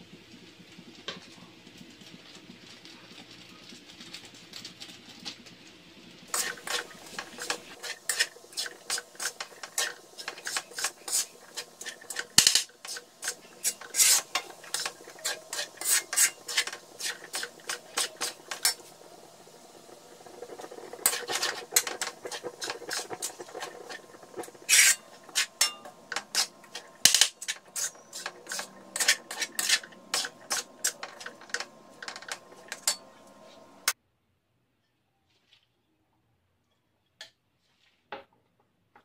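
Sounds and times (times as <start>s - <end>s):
metal spoon scraping a wok: 6.3s - 34.0s.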